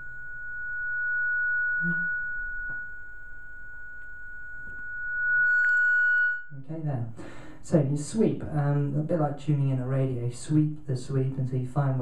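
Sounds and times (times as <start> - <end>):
microphone feedback whistling tone: 0.0 - 6.6.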